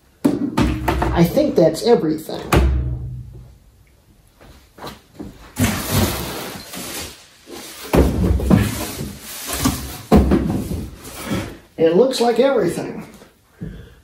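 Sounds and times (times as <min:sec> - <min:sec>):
cardboard boxes rustling and scraping: 0:04.8 - 0:11.6
heavy thumps of boxes set down: 0:07.8 - 0:11.6.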